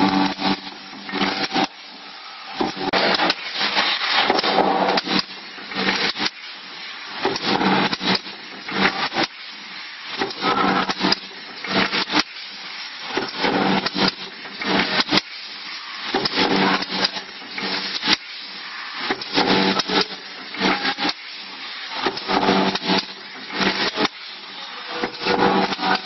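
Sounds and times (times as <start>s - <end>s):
packing machine rattling with clicks: 0.0s - 1.8s, 4.2s - 6.4s, 7.2s - 9.4s, 10.2s - 12.4s, 13.1s - 15.4s, 16.1s - 18.3s, 19.1s - 21.4s, 22.0s - 24.3s, 25.0s - 26.0s
steady machine hum: 0.0s - 26.0s.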